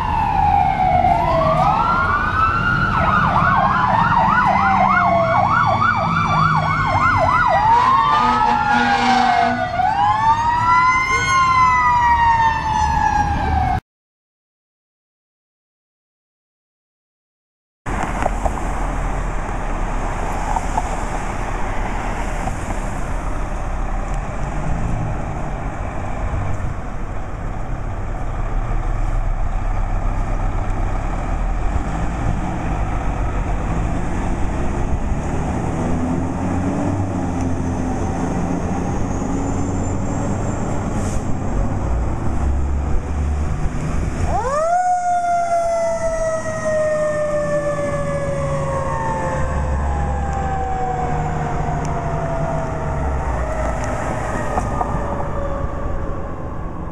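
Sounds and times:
diesel engines rumbling: 0:00.0 - 0:13.8, 0:17.9 - 0:56.9
siren wailing: 0:00.0 - 0:13.8, 0:44.2 - 0:56.9.

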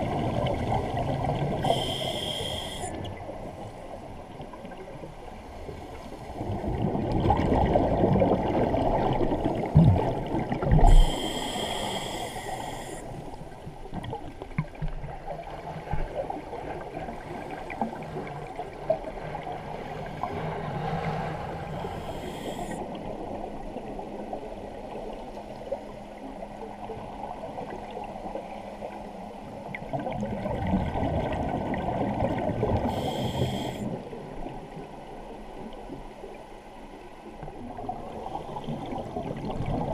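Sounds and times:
gurgling bubbles underwater: 0:00.0 - 0:03.3, 0:06.3 - 0:25.8, 0:29.6 - 0:34.9, 0:37.4 - 0:39.9
regulator inhalation hiss: 0:01.6 - 0:03.0, 0:10.9 - 0:13.2, 0:21.8 - 0:22.8, 0:32.9 - 0:33.9.

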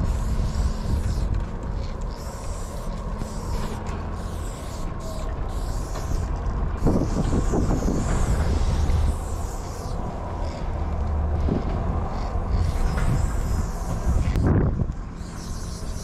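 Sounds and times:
spray paint can hissing: 0:00.0 - 0:10.0, 0:12.6 - 0:14.4, 0:15.2 - 0:16.0
wind rumble on microphone: 0:00.0 - 0:16.0.

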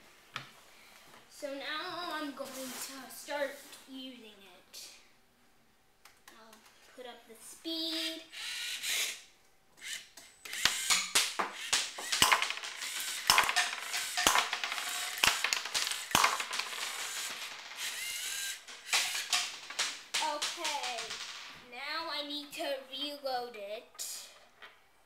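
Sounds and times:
servo motors whirring: 0:09.8 - 0:12.2, 0:17.8 - 0:18.6
sharp clicks and knocks: 0:10.2 - 0:21.5.

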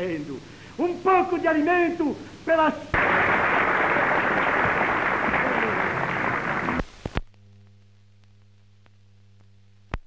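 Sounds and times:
faint steady hum: 0:00.0 - 0:10.0
light crackle: 0:03.0 - 0:10.0.

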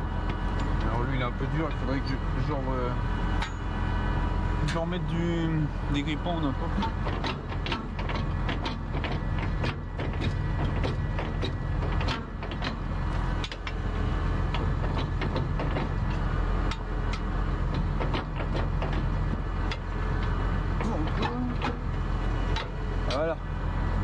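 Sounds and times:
tractor engine idling: 0:00.0 - 0:24.0
metallic clicks and knocks: 0:06.8 - 0:13.8, 0:14.5 - 0:21.9.

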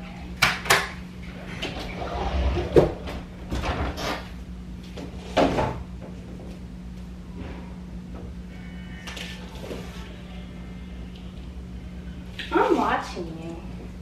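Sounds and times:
steady low hum: 0:00.0 - 0:14.0
closet doors knocking and rattling: 0:01.6 - 0:04.2.

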